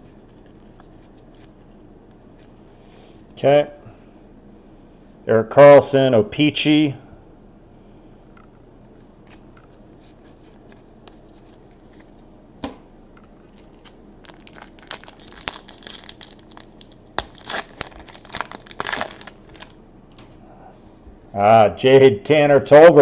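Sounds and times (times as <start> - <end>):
faint card handling: 0.0 - 3.3, 8.8 - 12.3
plastic wrapper tearing and crinkling: 13.4 - 19.8.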